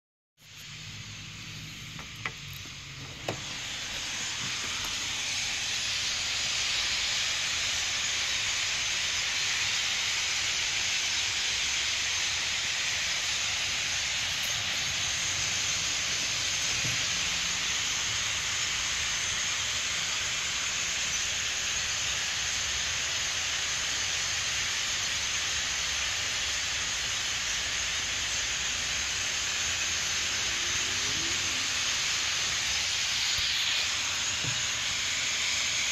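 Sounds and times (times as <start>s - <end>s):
starling flock calls: 29.7s - 35.9s.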